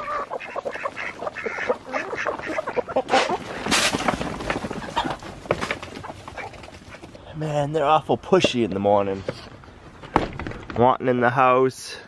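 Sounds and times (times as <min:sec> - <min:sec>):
chickens calling: 0:00.0 - 0:08.6.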